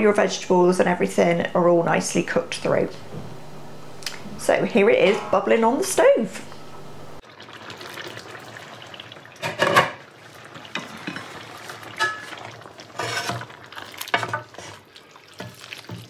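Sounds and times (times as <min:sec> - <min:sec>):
wooden spoons stirring sauce in pan: 0:10.2 - 0:16.0.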